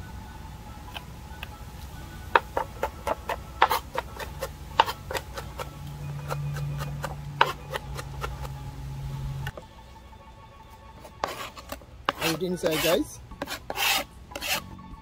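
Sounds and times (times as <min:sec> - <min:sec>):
low steady hum: 0:00.0 - 0:15.0
knife chopping on plastic board: 0:02.4 - 0:08.6, 0:11.2 - 0:14.6.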